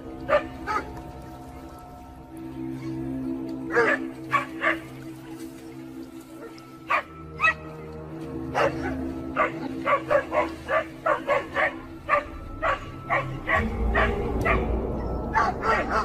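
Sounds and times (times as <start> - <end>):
dogs barking: 0.0 - 1.0, 3.6 - 5.4, 6.4 - 7.7, 8.4 - 16.0.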